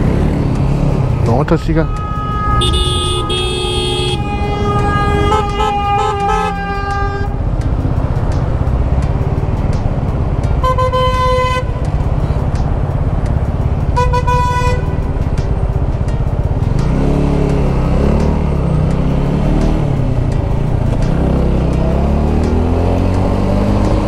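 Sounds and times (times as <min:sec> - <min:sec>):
engine revving: 0:00.0 - 0:10.6, 0:11.2 - 0:24.0
traffic engine and road rumble: 0:00.0 - 0:24.0
vehicle horn honking: 0:01.8 - 0:07.4, 0:10.6 - 0:11.8, 0:14.0 - 0:15.0.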